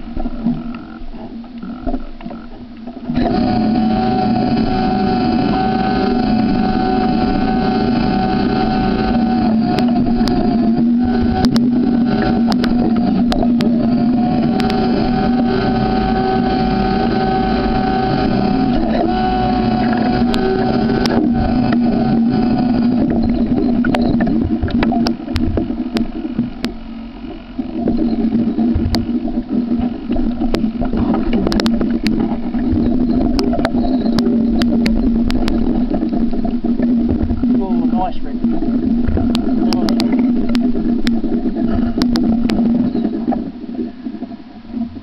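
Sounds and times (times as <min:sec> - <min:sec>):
boat motor humming: 0:00.0 - 0:45.0
sharp clicks and knocks: 0:09.7 - 0:15.5, 0:22.8 - 0:37.6, 0:39.0 - 0:43.4.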